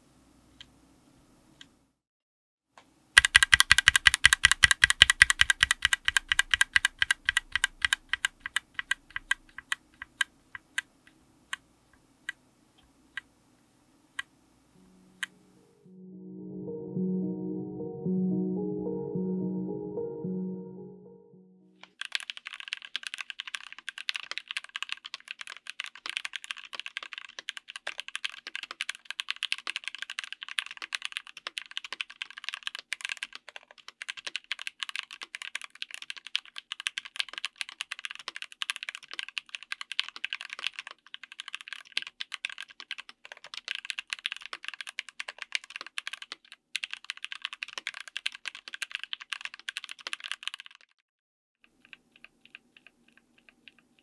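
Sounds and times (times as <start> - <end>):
typing on mechanical keyboard: 3.2 - 10.9, 21.9 - 51.0, 51.6 - 54.0.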